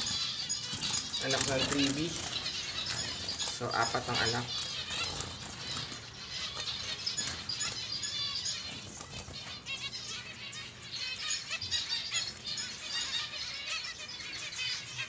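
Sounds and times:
wing flutter: 0:00.0 - 0:10.3
finches chirping: 0:00.0 - 0:15.0.

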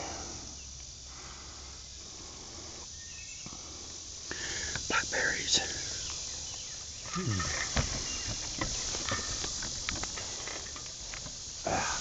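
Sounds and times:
insects buzzing: 0:00.0 - 0:12.0
leaves and twigs crackling: 0:05.6 - 0:12.0.

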